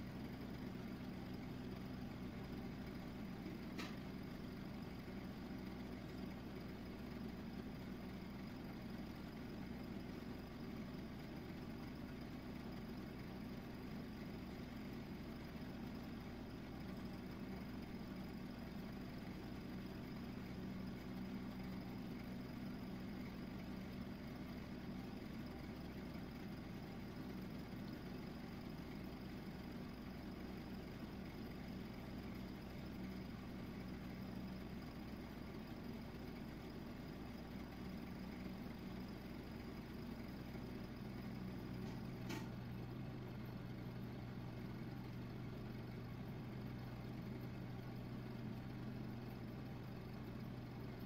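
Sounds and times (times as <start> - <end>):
low mechanical hum: 0.0 - 51.0.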